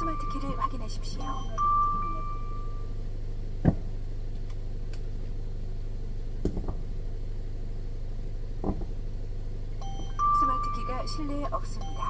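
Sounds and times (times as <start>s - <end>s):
car engine idling: 0.0s - 12.0s
knocks: 3.6s - 3.9s, 6.4s - 6.9s, 8.6s - 9.0s.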